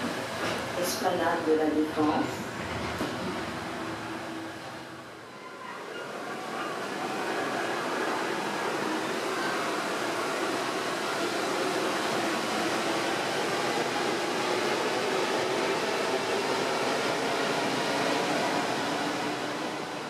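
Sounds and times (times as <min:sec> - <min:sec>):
train rumbling through tunnel: 0:00.0 - 0:20.0.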